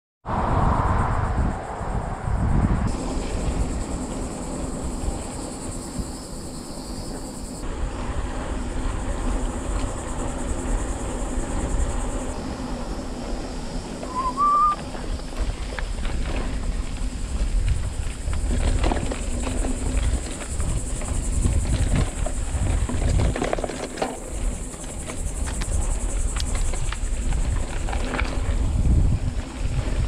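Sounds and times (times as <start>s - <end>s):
wind buffeting microphone: 0.2s - 30.0s
bike tyre rumble: 0.3s - 30.0s
high insect buzz: 1.3s - 15.3s
short whistle-like chirp: 14.1s - 14.8s.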